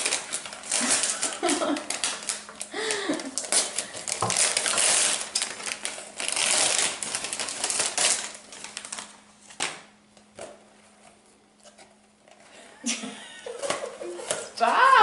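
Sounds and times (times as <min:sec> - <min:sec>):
wrapping paper tearing and crumpling: 0:00.0 - 0:09.8.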